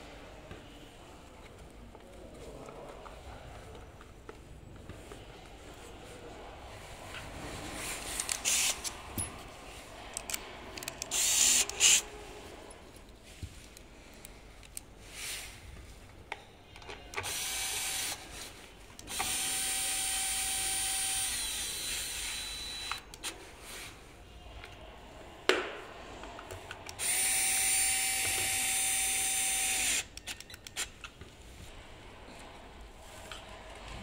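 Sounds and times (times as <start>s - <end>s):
electric drill-driver running: 8.4s - 8.8s, 11.1s - 12.0s, 17.3s - 18.2s, 19.1s - 23.0s, 27.0s - 30.1s.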